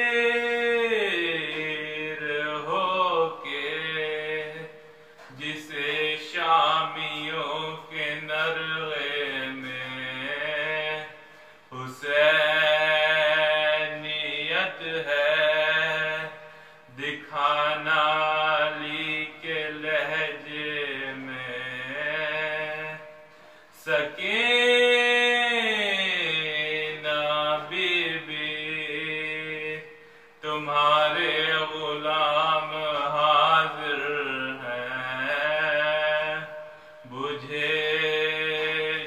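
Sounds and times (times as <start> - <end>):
man chanting melodic elegy: 0.0 - 39.0.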